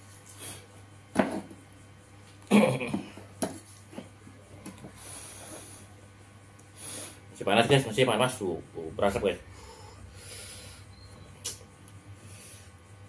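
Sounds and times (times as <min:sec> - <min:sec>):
faint steady hum: 0:00.0 - 0:13.0
breathing through the nose: 0:05.0 - 0:06.0, 0:06.7 - 0:07.3, 0:09.5 - 0:11.0, 0:12.2 - 0:12.8.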